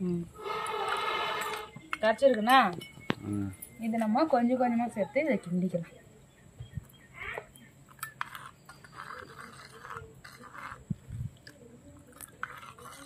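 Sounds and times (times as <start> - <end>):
spoon scraping clay pot: 0.4 - 3.0, 7.9 - 13.0
metal clinking on clay: 7.9 - 13.0.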